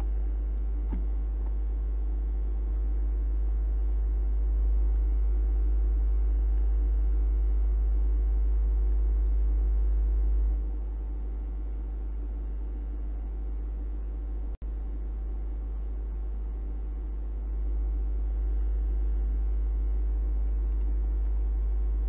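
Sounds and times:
faint steady tones: 0.0s - 22.0s
steady low hum: 0.0s - 22.0s.

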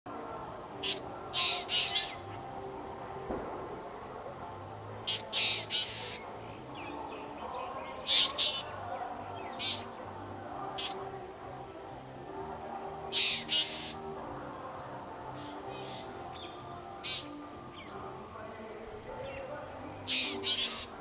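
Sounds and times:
pulsing insect trill: 0.1s - 21.0s
drongo calls: 0.3s - 3.4s, 4.2s - 21.0s.

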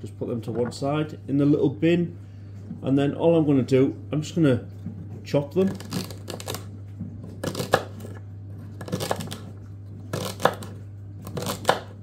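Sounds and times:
steady low hum: 0.0s - 12.0s
knife chopping celery on board: 7.3s - 9.5s, 10.1s - 12.0s.

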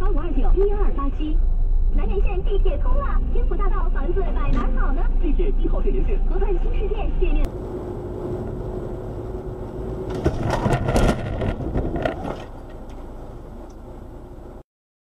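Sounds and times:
car interior running hum: 0.0s - 14.6s
car crash knocks: 10.0s - 12.5s.

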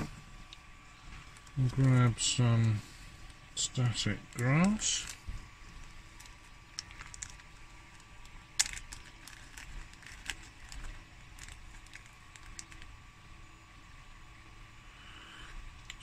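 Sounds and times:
plastic packet crinkling: 0.4s - 13.0s.

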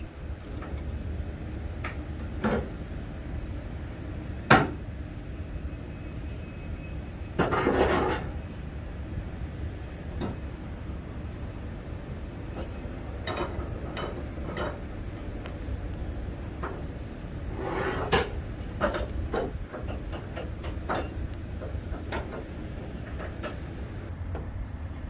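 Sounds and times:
steady low rumble: 0.0s - 25.0s
metallic clanks: 12.6s - 15.4s.

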